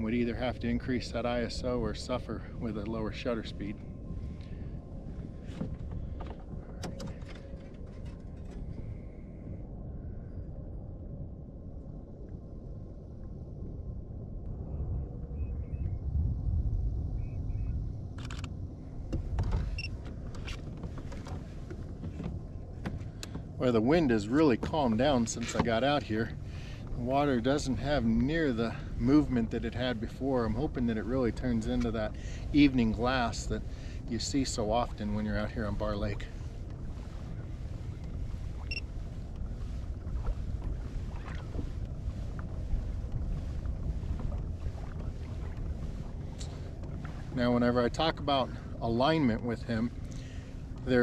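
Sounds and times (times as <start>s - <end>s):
steady low rumble: 0.0s - 51.0s
faint small clicks: 18.1s - 21.8s, 22.8s - 23.4s.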